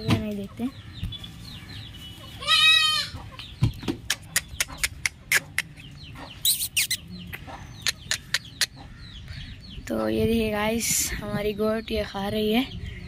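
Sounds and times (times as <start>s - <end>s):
goat kid bleating: 2.4s - 3.2s
chickens clucking faintly: 3.0s - 9.3s.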